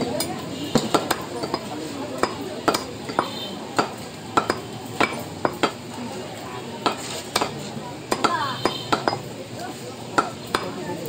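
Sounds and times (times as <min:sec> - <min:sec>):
cleaver chopping meat on wood: 0:00.7 - 0:05.9, 0:06.8 - 0:09.3, 0:10.2 - 0:10.8.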